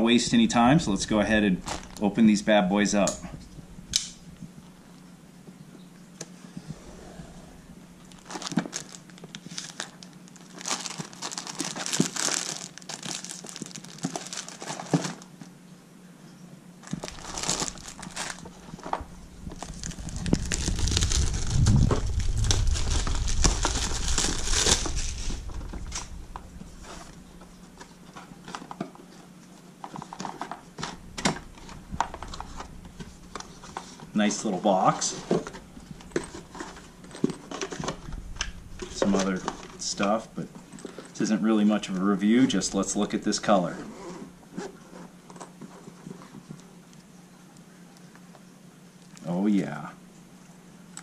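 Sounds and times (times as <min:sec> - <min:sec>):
plastic shrink-wrap crinkling: 0:01.6 - 0:02.2, 0:08.0 - 0:15.4, 0:16.8 - 0:28.8, 0:29.9 - 0:34.2, 0:35.0 - 0:43.8.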